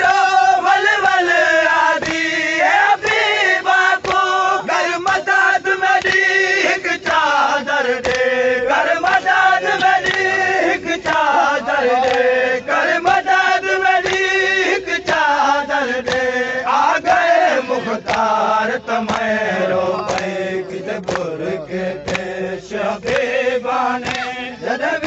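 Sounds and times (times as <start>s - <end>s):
men chanting in chorus: 0.0s - 25.0s
chest-beating slaps: 2.0s - 3.3s, 3.9s - 5.3s, 6.0s - 6.4s, 7.9s - 8.4s, 9.1s - 10.4s, 11.9s - 12.4s, 14.0s - 14.4s, 16.0s - 16.4s, 19.0s - 24.5s.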